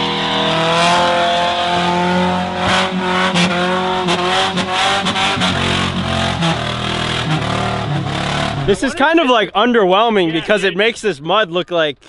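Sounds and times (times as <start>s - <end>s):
truck engine revving: 0.0s - 9.4s.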